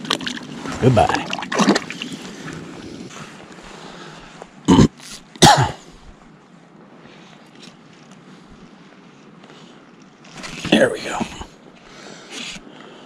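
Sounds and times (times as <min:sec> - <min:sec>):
light water noise: 0:00.0 - 0:04.6
wind: 0:00.0 - 0:13.0.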